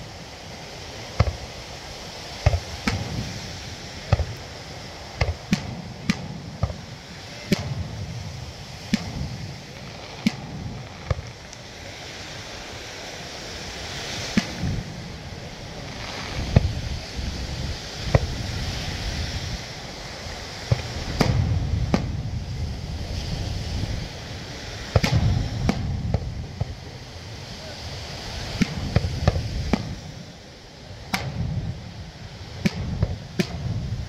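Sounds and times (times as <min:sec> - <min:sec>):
background rush: 0:00.0 - 0:34.0
fireworks shells bursting: 0:00.9 - 0:12.0, 0:13.9 - 0:17.1, 0:20.5 - 0:22.3, 0:24.9 - 0:27.0, 0:28.5 - 0:30.1, 0:31.1 - 0:31.9, 0:32.5 - 0:34.0.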